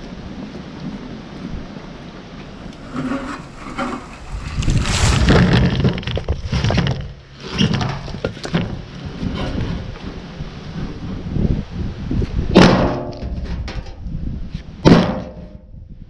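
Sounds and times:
firewood tumbling and clattering: 2.6 - 9.8
wheelbarrow rattling: 2.7 - 9.9.

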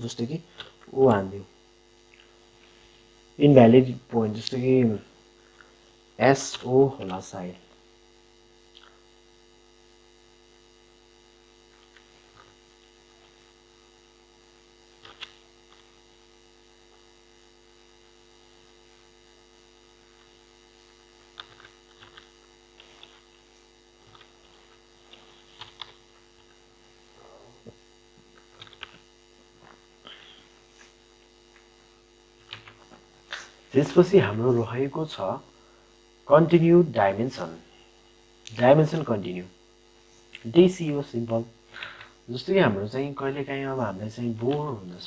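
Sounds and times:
electrical mains hum: 0.0 - 45.0
keyboard and mouse clicks: 15.0 - 15.4, 28.6 - 29.0.

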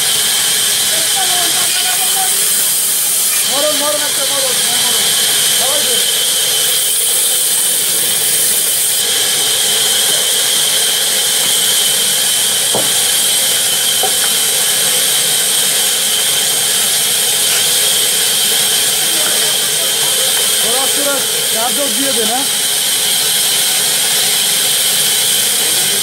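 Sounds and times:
band saw whining: 0.0 - 26.0
sharp knock: 12.7 - 13.1, 14.0 - 14.4.

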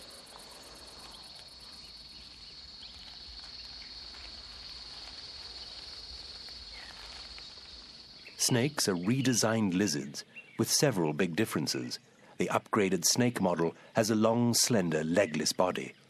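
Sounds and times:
insects trilling: 0.0 - 16.0.

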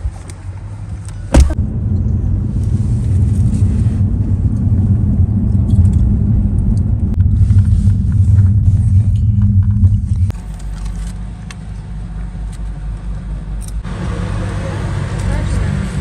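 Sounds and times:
car interior road and engine rumble: 0.0 - 16.0.

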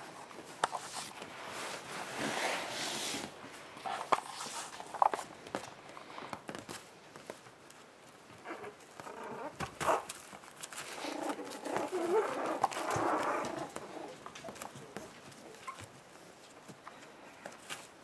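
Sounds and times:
paws scratching on bedding: 0.1 - 16.7
puppies whining and yipping: 15.4 - 15.9.

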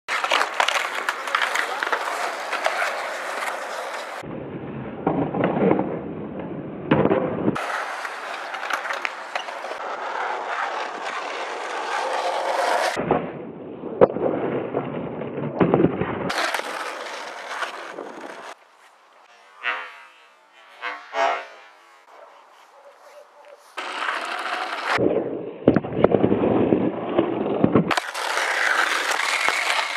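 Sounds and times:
skateboard clacks: 0.1 - 4.2, 7.6 - 13.0, 16.3 - 18.6, 23.8 - 25.0, 27.8 - 29.9
skateboard wheels rolling: 0.1 - 4.2, 7.5 - 13.0, 16.3 - 25.0, 27.4 - 29.9.

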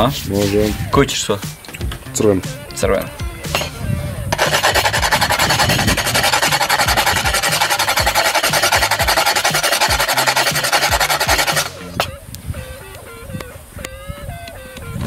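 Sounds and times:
rock salt scraping on metal grater: 4.4 - 11.8.

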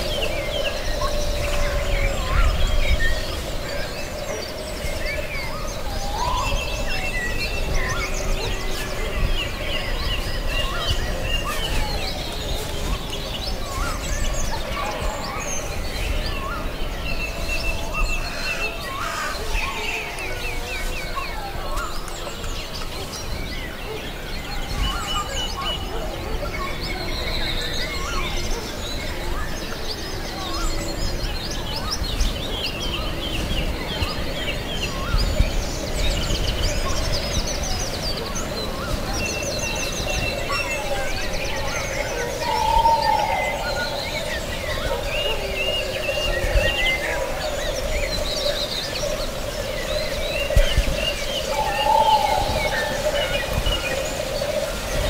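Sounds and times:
songbirds singing and chirping: 0.0 - 55.0.

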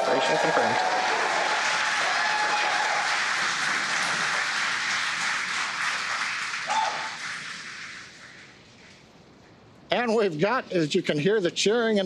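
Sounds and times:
crowd cheering and applauding: 0.0 - 8.4.

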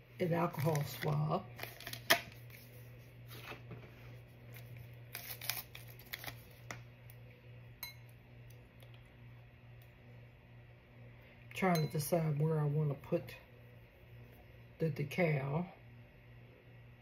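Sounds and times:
foil packet crackling and ripping: 0.5 - 2.5, 4.6 - 6.8.

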